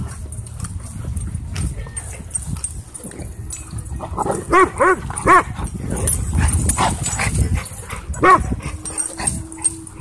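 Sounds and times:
dogs barking: 3.9 - 9.8.

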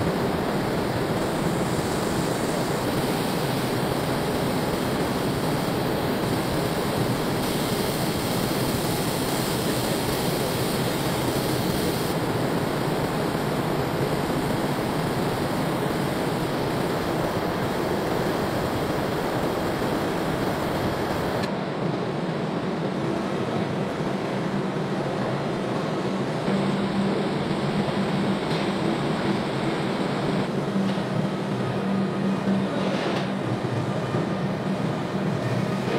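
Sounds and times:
factory machinery rushing noise: 0.0 - 35.9.

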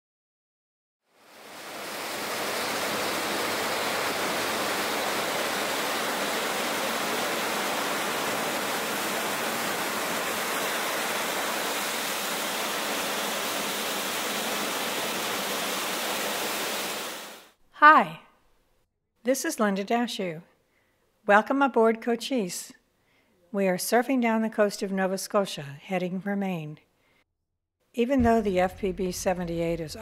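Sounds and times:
white water rushing in boat wake: 1.4 - 17.5.

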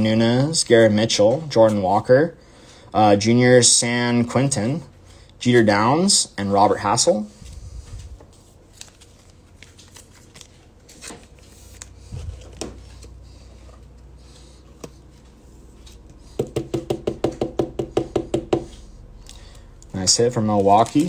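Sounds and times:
cards and plastic case handled: 20.4 - 21.0.

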